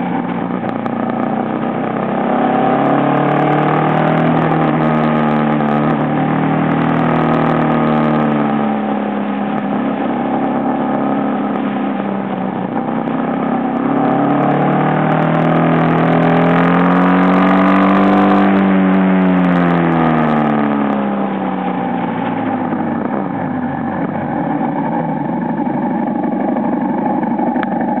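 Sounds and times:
motorcycle engine revving: 0.0s - 28.0s
wind: 0.0s - 28.0s.

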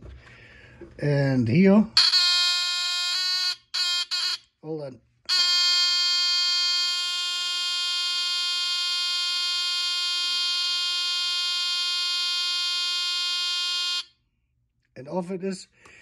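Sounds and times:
warning buzzer tone: 2.0s - 4.4s, 5.3s - 14.1s.

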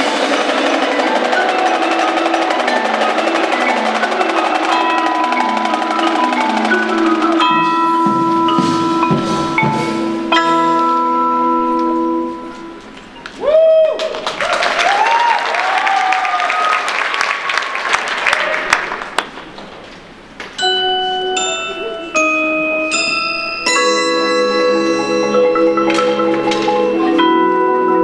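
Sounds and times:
crowd cheering and clapping: 0.0s - 7.5s, 13.3s - 19.4s
marimbas and vibraphones playing: 0.0s - 13.4s, 20.5s - 28.0s.

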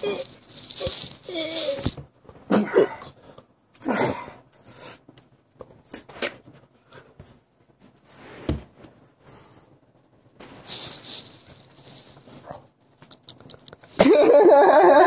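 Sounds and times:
phone rubbing against clothing: 0.0s - 2.0s, 10.4s - 12.4s.

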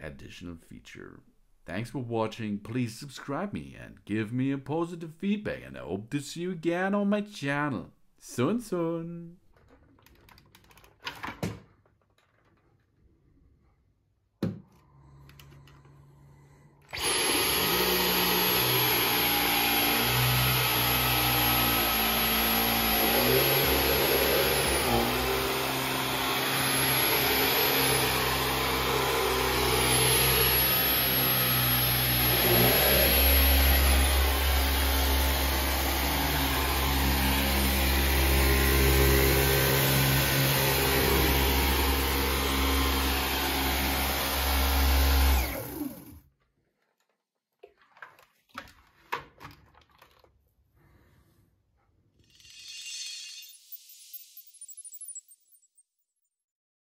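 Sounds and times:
cordless vacuum motor whine: 16.9s - 46.2s.

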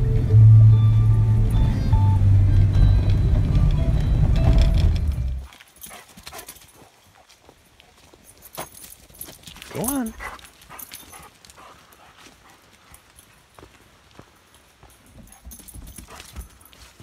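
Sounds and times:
music with bass line: 0.0s - 5.4s
car interior drone: 0.0s - 5.5s.

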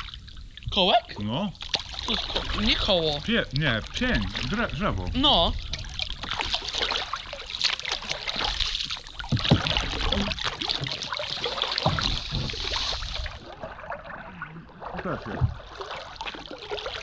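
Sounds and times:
paddles splashing in water: 0.0s - 17.0s
sharp knocks: 11.8s - 12.6s.

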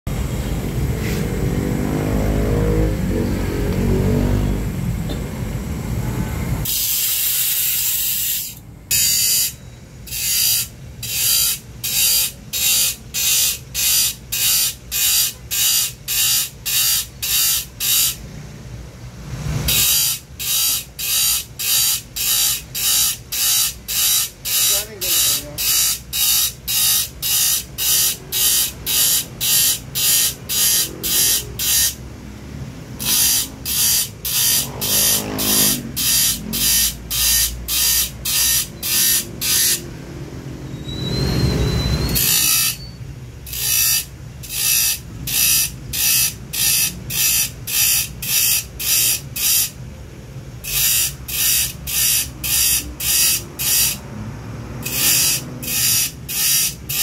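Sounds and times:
grinder rasping on saw teeth: 6.6s - 18.2s, 19.5s - 32.0s, 33.0s - 39.9s, 42.1s - 42.9s, 43.5s - 49.8s, 50.6s - 54.1s, 54.8s - 57.0s
grinder motor running: 19.3s - 32.0s, 33.0s - 40.0s, 43.5s - 49.8s, 50.6s - 54.1s, 54.7s - 57.0s.

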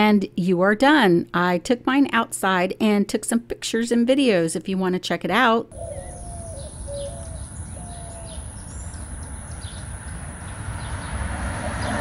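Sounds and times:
birds chirping: 5.7s - 12.0s
wind buffeting microphone: 5.8s - 12.0s.

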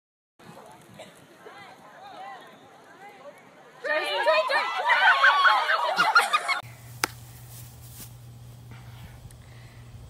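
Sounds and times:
girls squealing and shrieking: 3.8s - 6.6s
faint low hum: 6.6s - 10.0s.

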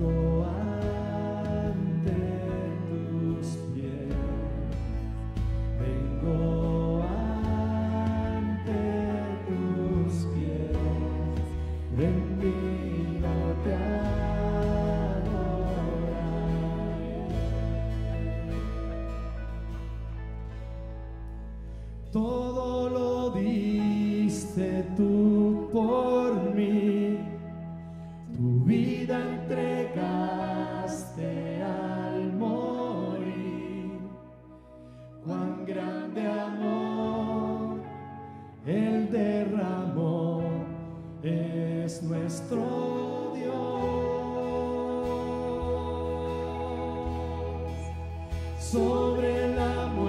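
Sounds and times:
voices singing worship song: 0.0s - 20.7s, 21.7s - 50.0s
instrumental accompaniment: 0.0s - 22.5s, 42.6s - 50.0s.

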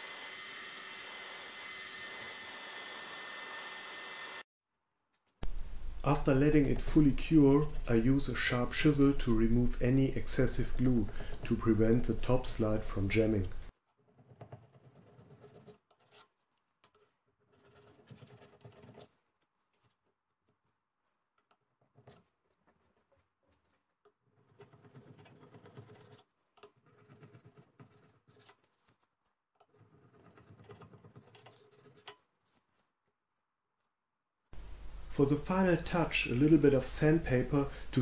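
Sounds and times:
chisel scraping metal: 14.0s - 19.1s, 29.6s - 32.3s, 35.7s - 38.0s.

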